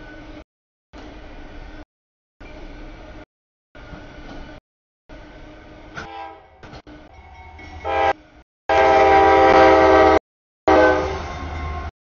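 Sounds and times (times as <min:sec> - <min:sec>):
low rumble of train: 0:00.0 - 0:00.4, 0:01.0 - 0:01.8, 0:02.4 - 0:11.9
locomotive horn blasts: 0:06.0 - 0:06.6, 0:07.8 - 0:11.3.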